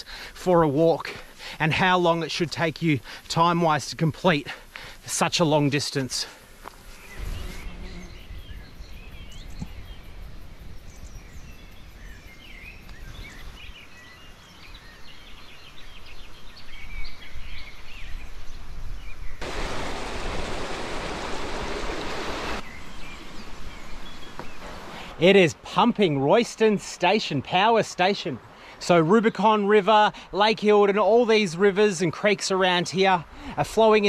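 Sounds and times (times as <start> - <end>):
bird chirps: 6.9 - 19.4.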